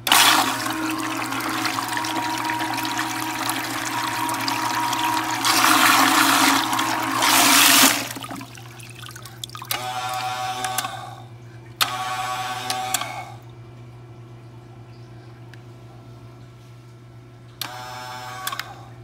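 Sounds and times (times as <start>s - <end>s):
pump churning and splashing water: 0.0s - 11.0s
pump click: 0.0s - 11.0s
pump motor whirring: 0.0s - 11.2s, 11.8s - 13.4s, 17.6s - 18.8s.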